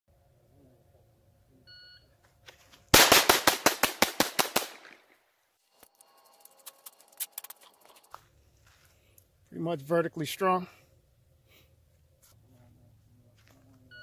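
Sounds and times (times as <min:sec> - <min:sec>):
pistol shots in fast string: 0:03.0 - 0:05.1.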